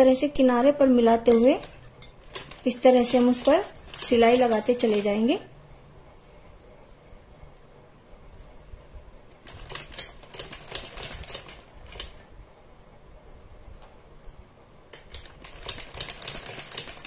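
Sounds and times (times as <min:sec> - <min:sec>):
sewing machine stitching: 0:01.4 - 0:05.4, 0:09.4 - 0:12.2, 0:15.2 - 0:17.0.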